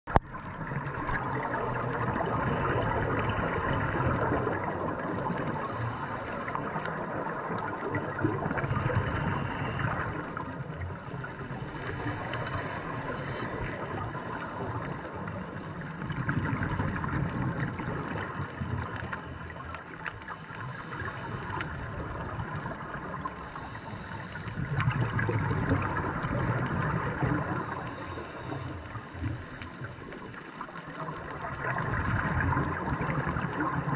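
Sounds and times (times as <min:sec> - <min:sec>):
underwater bubbling regulator breathing: 0:00.1 - 0:33.9.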